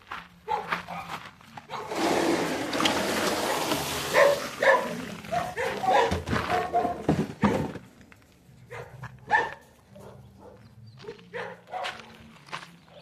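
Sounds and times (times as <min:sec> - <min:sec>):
dogs barking: 0:00.4 - 0:02.0, 0:03.4 - 0:07.7, 0:08.6 - 0:12.2.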